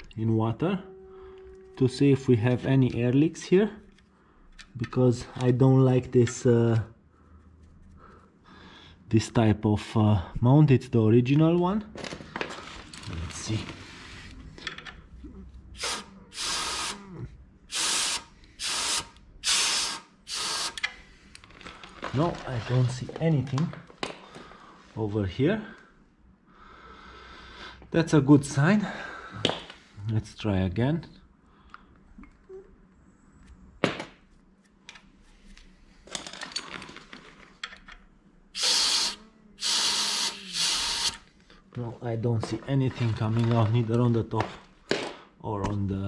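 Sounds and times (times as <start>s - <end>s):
air blow gun hissing: 15.8s - 17.0s, 17.7s - 20.8s, 38.6s - 41.2s.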